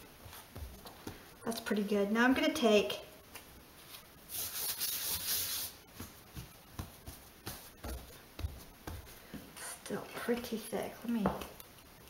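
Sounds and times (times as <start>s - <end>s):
hands rubbing dough: 0.0s - 1.4s, 3.4s - 10.6s.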